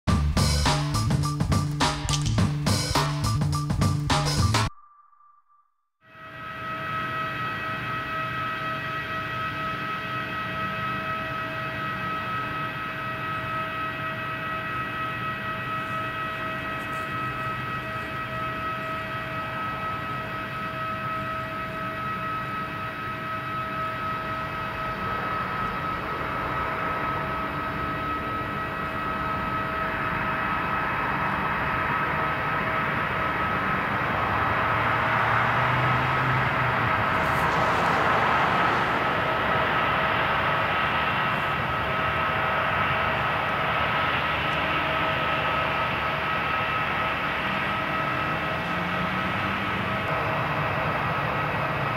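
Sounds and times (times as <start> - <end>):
jet engine whine: 0.1 - 5.4, 6.1 - 51.9
rushing roar of landing jet: 6.2 - 51.9.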